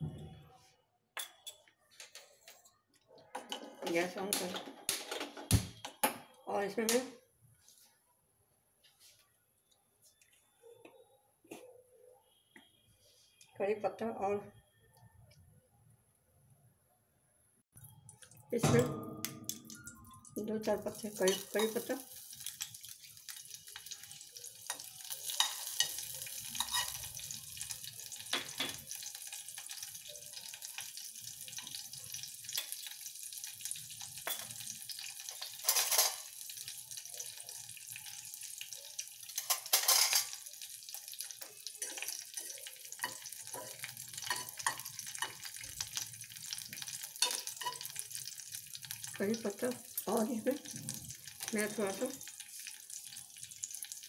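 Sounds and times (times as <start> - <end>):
leaves sizzling in hot oil: 20.3 - 54.0.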